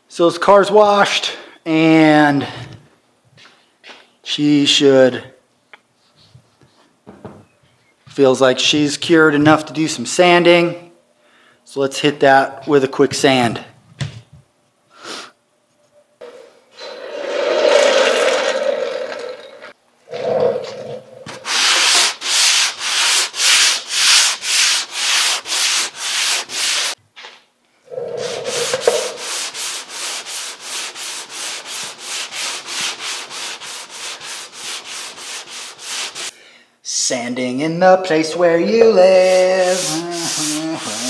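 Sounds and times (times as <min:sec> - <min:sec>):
sandpaper rubbing on filler: 0:21.3 - 0:27.0, 0:28.2 - 0:36.3, 0:39.0 - 0:41.0.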